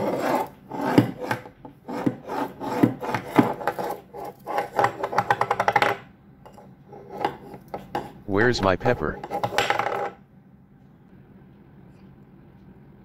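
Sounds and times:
dish scraping on wood: 0.0s - 5.8s, 9.2s - 10.1s.

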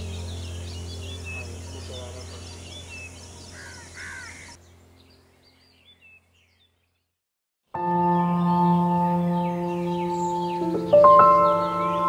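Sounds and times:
steady low hum: 0.0s - 5.4s
harsh bird calls: 0.0s - 6.9s
small birds chirping: 0.0s - 7.2s, 7.9s - 12.0s.

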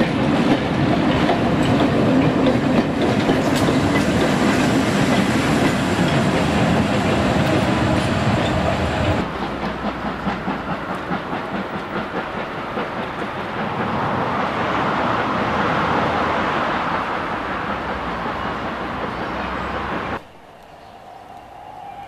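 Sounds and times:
wheels clicking over rail joints: 0.0s - 15.3s
steam locomotive rumble: 0.0s - 22.0s
train running noise: 0.0s - 22.0s.

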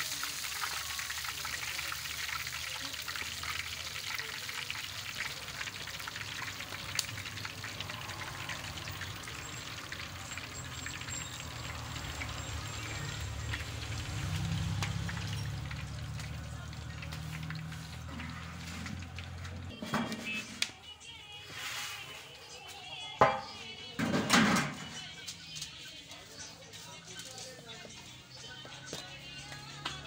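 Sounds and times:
oil sizzling and crackling: 0.0s - 19.6s.

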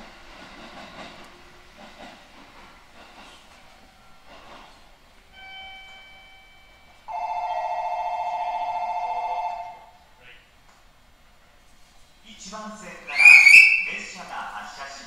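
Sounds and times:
train background noise: 0.0s - 15.0s
electronic bell ringing: 5.4s - 9.8s.

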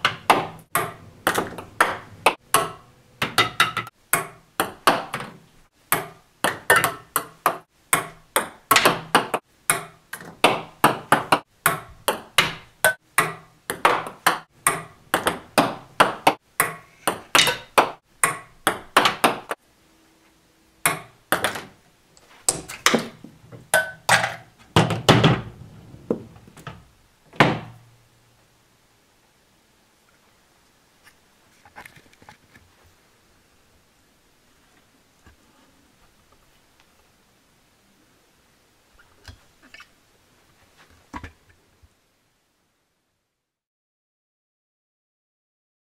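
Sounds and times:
ping-pong ball bouncing on wood: 0.0s - 19.6s, 20.8s - 21.7s, 23.7s - 25.5s.

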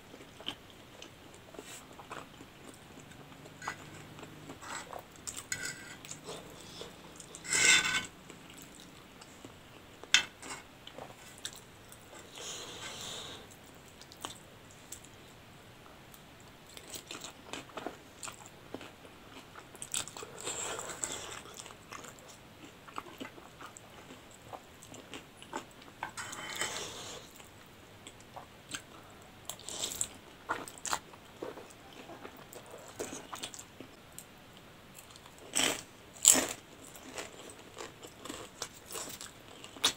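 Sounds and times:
chewing: 0.1s - 7.6s, 16.7s - 34.0s, 35.0s - 39.9s.

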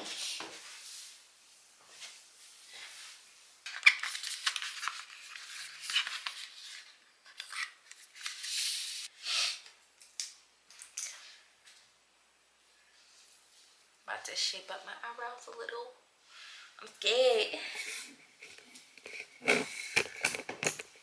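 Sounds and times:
plastic items clicking and scraping: 18.4s - 21.0s.

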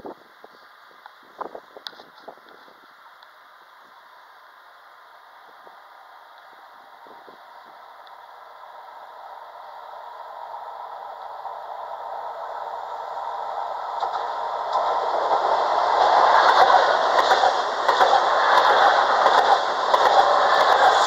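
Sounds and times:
electric train running past: 3.4s - 21.0s
wheels ticking on track: 13.9s - 21.0s.

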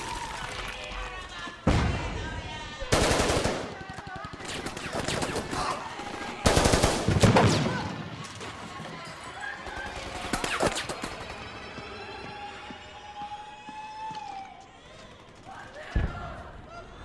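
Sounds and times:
automatic rifle fire: 2.9s - 5.8s, 6.4s - 7.9s.

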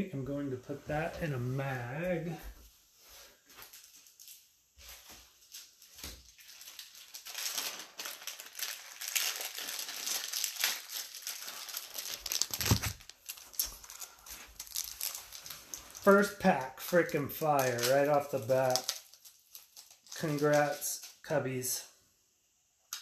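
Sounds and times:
plastic packaging crinkling: 3.5s - 21.3s.

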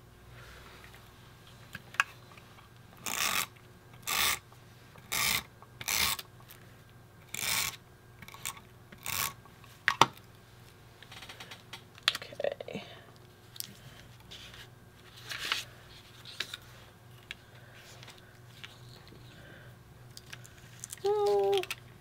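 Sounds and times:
tape runner strokes: 3.0s - 4.4s, 5.0s - 6.3s, 7.3s - 9.4s.

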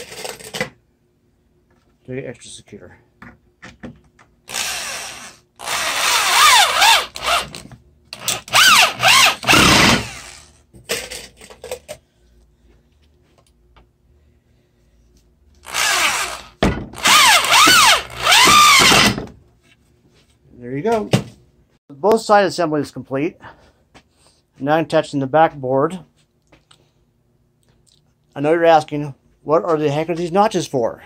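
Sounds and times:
electric drill driving screws: 4.5s - 7.6s, 8.2s - 10.6s, 15.6s - 19.2s.

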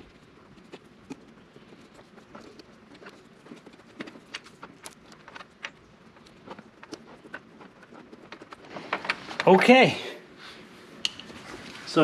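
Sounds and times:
tape clicks and crinkles: 0.0s - 9.6s.

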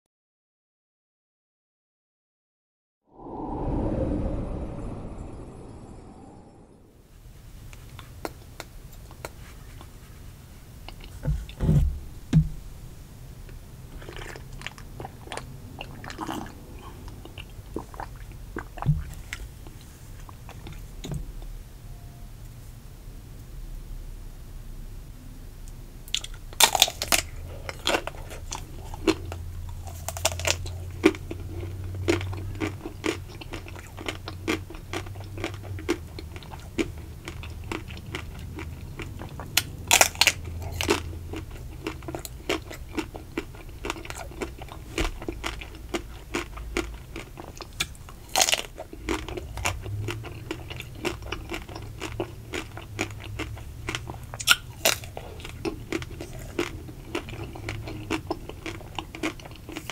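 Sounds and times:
crunching and wet chewing: 7.7s - 11.6s, 13.9s - 20.9s, 26.1s - 59.9s.

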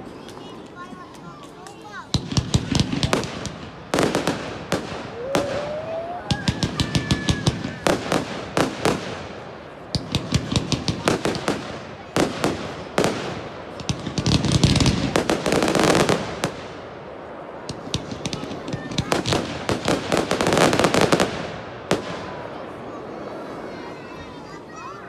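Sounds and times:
fireworks bangs and crackles: 0.0s - 25.0s
rising firework whistle: 4.7s - 8.2s.

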